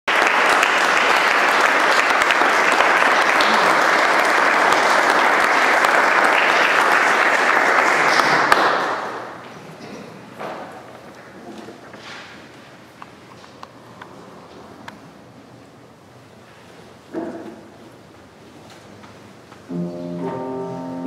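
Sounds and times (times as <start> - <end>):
audience applauding: 0.1 - 9.4.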